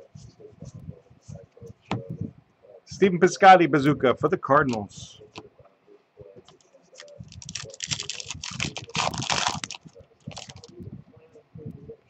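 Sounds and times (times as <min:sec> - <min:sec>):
foil wrapper tearing and crinkling: 0:07.4 - 0:10.7.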